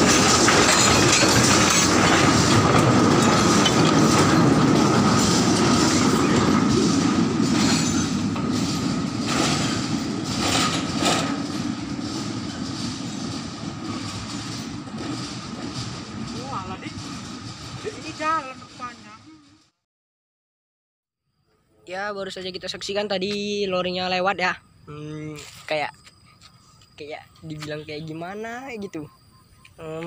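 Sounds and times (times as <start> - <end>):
wheels clacking over rail joints: 0.0 - 19.7
train wagons clattering: 0.0 - 19.8.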